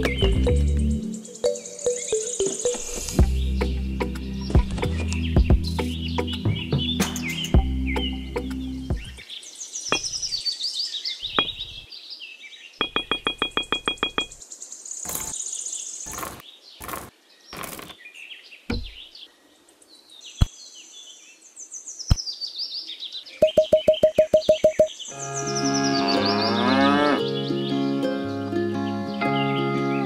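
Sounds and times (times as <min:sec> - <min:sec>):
birds chirping: 0:00.0 - 0:30.0
sharp knocks: 0:11.4 - 0:11.7, 0:12.8 - 0:14.4, 0:18.7 - 0:19.0.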